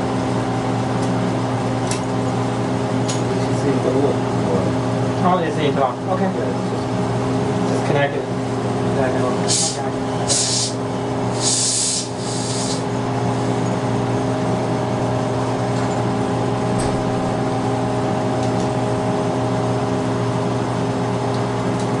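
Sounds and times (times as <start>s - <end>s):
laboratory equipment humming: 0.0s - 22.0s
short hisses: 9.5s - 10.8s, 11.4s - 12.8s.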